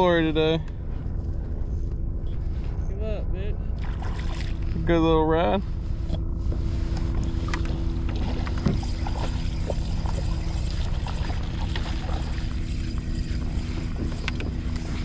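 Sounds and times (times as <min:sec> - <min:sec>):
wind rumble: 0:00.0 - 0:15.0
water lapping against kayak hull: 0:03.7 - 0:04.8, 0:05.7 - 0:15.0.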